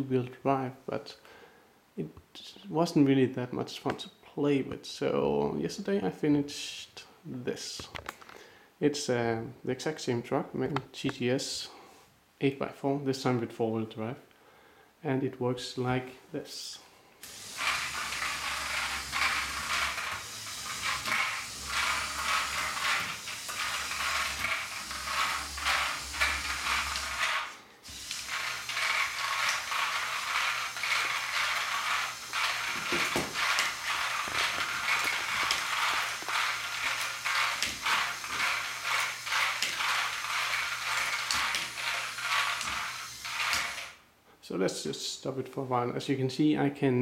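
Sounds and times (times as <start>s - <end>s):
electric motor hum: 17.2s - 44.0s
plastic gears clicking and whirring: 17.2s - 44.0s.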